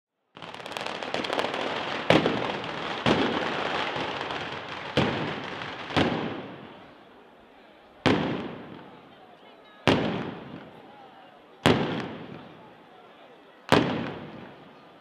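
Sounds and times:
firecrackers crackling: 0:00.3 - 0:07.0, 0:08.0 - 0:09.1, 0:09.8 - 0:10.9, 0:11.6 - 0:12.7, 0:13.7 - 0:14.8
heavy firecracker bangs: 0:00.4 - 0:06.8, 0:08.0 - 0:09.0, 0:09.9 - 0:10.8, 0:11.6 - 0:12.6, 0:13.7 - 0:14.6.

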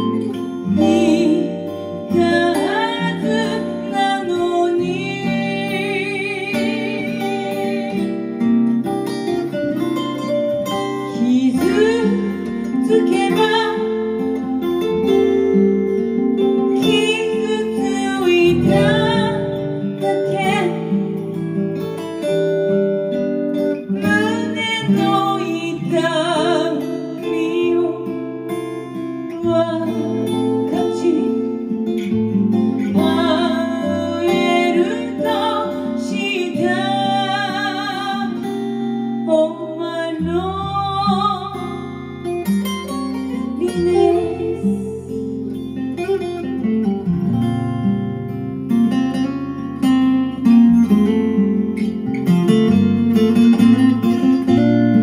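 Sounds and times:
woman singing with vibrato: 0:00.0 - 0:08.3, 0:10.9 - 0:14.5, 0:16.5 - 0:21.2, 0:24.0 - 0:31.8, 0:32.8 - 0:42.0, 0:43.3 - 0:45.6
acoustic guitar: 0:00.0 - 0:55.0.

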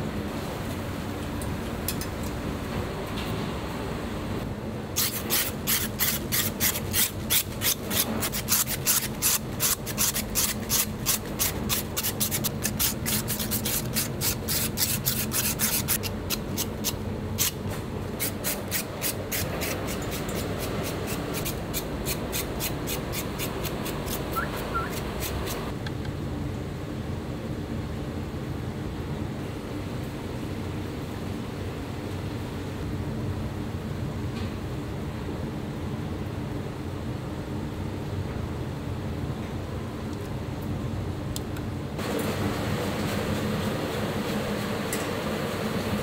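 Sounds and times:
blade scraping crispy pork skin: 0:05.0 - 0:17.6.

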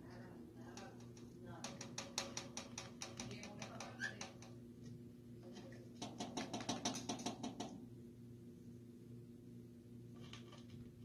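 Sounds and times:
bird beak tapping on wood: 0:00.7 - 0:04.6, 0:06.0 - 0:07.8.

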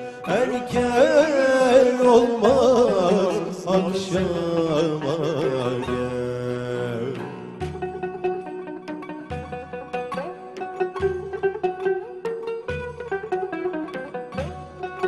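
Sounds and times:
man singing: 0:00.0 - 0:07.8
plucked string instruments: 0:00.0 - 0:15.0.

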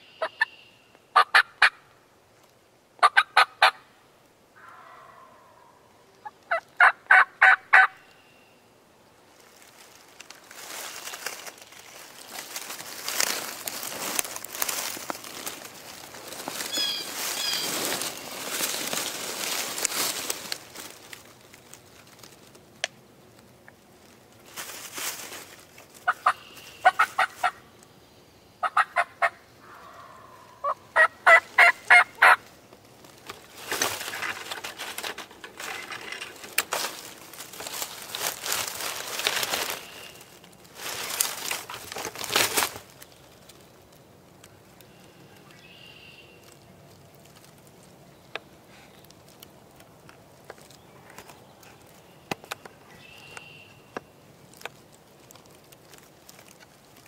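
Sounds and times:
turkey yelping: 0:03.0 - 0:03.8, 0:04.6 - 0:08.0, 0:16.6 - 0:17.8, 0:26.1 - 0:27.6, 0:28.6 - 0:32.4
rustling noise: 0:09.3 - 0:22.7, 0:23.3 - 0:27.6, 0:31.4 - 0:44.4.

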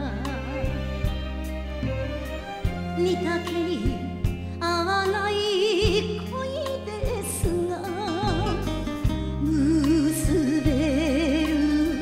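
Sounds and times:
orchestral backing: 0:00.0 - 0:12.0
woman singing with vibrato: 0:02.8 - 0:08.7, 0:09.4 - 0:12.0.

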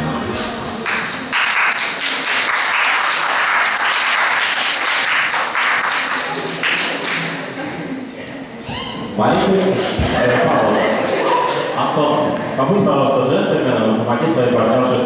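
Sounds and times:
dance music: 0:00.0 - 0:01.3
audience applauding: 0:00.4 - 0:07.6, 0:10.0 - 0:12.0.

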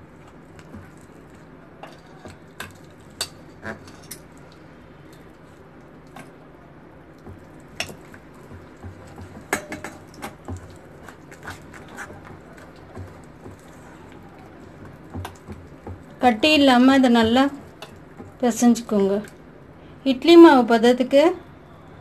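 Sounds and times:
hand squishing batter: 0:00.0 - 0:19.8
low steady hum: 0:00.0 - 0:22.0.

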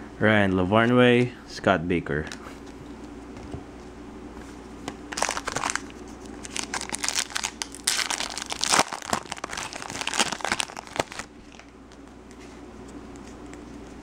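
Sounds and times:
foil wrapper crinkling: 0:05.1 - 0:12.0.

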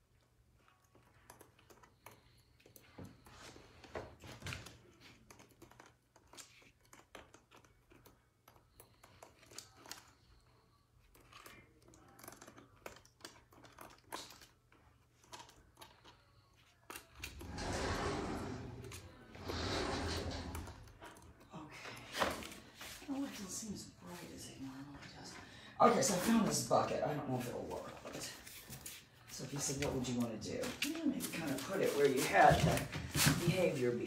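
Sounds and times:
rustling and scraping: 0:16.9 - 0:34.0.

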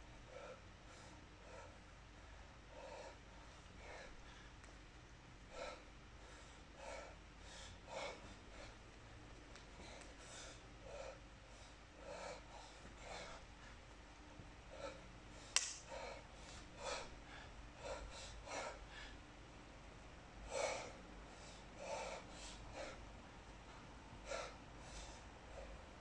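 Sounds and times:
man breathing heavily: 0:00.0 - 0:26.0.

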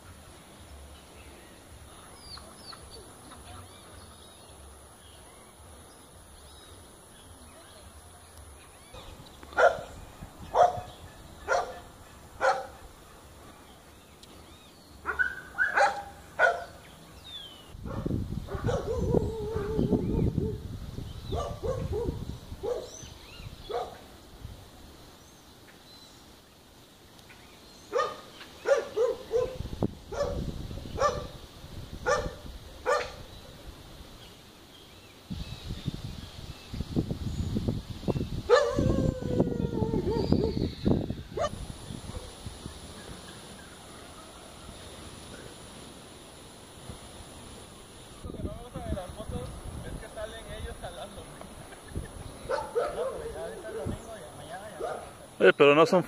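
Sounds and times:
dog barking: 0:08.9 - 0:12.8, 0:15.0 - 0:16.8, 0:17.9 - 0:20.6, 0:21.3 - 0:23.0, 0:23.7 - 0:24.0, 0:27.9 - 0:31.4, 0:32.0 - 0:33.3, 0:38.5 - 0:39.0, 0:41.4 - 0:42.4, 0:52.5 - 0:54.0, 0:54.8 - 0:55.2.

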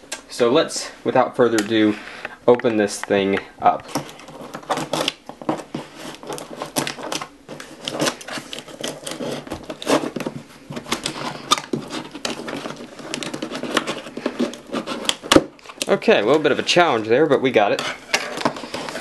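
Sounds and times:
scissors snipping packing tape: 0:03.8 - 0:05.2, 0:06.1 - 0:10.2, 0:10.8 - 0:15.9.

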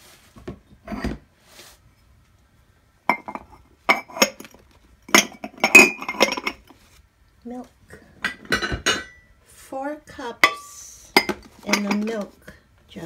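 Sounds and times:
ceramic mugs clinking: 0:03.1 - 0:06.8, 0:08.2 - 0:09.3, 0:10.4 - 0:12.3.

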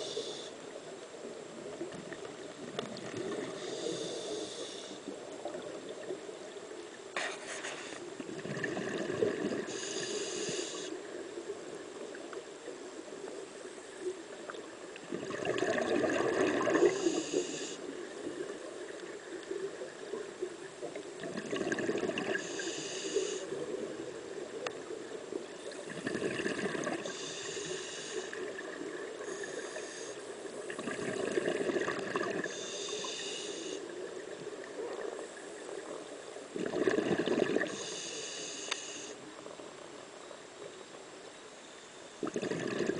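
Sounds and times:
regulator hiss on inhale: 0:00.0 - 0:00.8, 0:03.2 - 0:05.7, 0:07.2 - 0:08.2, 0:09.4 - 0:11.2, 0:16.7 - 0:18.4, 0:22.2 - 0:23.8, 0:26.8 - 0:30.7, 0:32.2 - 0:34.3, 0:37.5 - 0:39.4
exhaust bubbles underwater: 0:08.2 - 0:09.7, 0:15.0 - 0:17.2, 0:21.2 - 0:22.6, 0:25.7 - 0:27.2, 0:30.7 - 0:32.5, 0:36.5 - 0:37.8, 0:42.2 - 0:42.9.

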